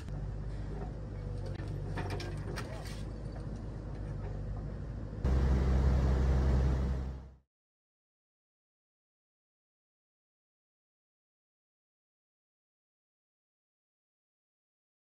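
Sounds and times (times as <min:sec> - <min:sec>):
metallic clanks of rubble: 0:00.0 - 0:04.8
excavator engine running: 0:00.0 - 0:07.4.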